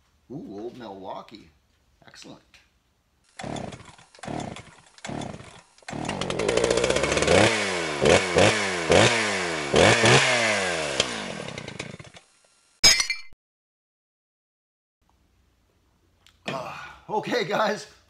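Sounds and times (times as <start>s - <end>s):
chainsaw engine revving: 3.3s - 12.5s.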